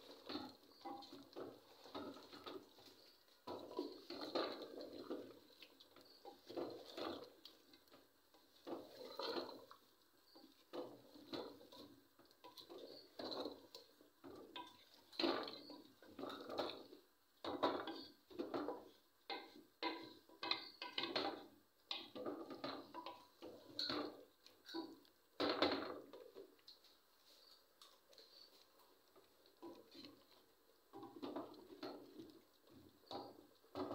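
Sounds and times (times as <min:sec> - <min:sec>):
wooden spoon scraping metal pot: 0:00.0 - 0:25.1.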